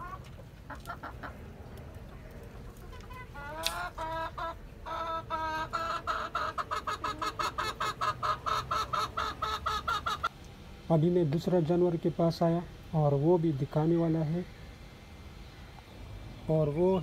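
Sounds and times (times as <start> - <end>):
hen clucking: 0.0 - 10.3.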